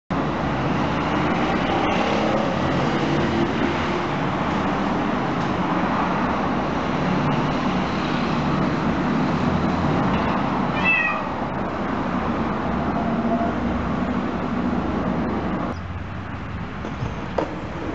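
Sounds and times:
street traffic noise: 0.1s - 17.9s
cat meow: 10.7s - 11.4s.

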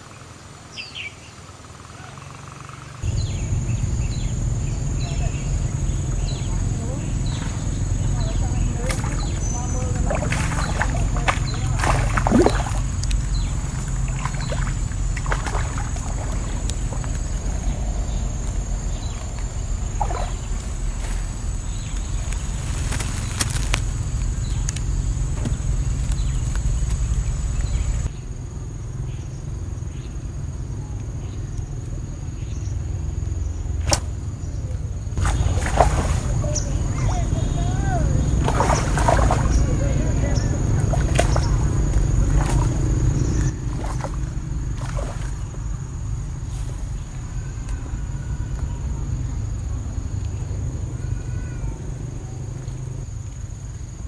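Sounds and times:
insects droning: 0.0s - 54.0s
low rumble: 3.0s - 30.6s
fish splashing and flapping: 4.4s - 28.1s, 35.2s - 45.8s.

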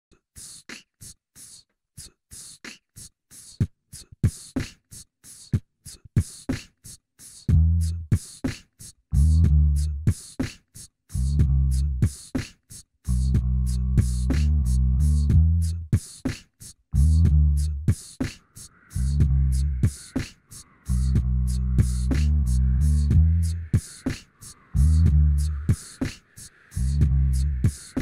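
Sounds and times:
beatboxed percussion: 0.1s - 28.0s
low beatboxed bass line: 7.3s - 8.4s, 9.1s - 28.0s.

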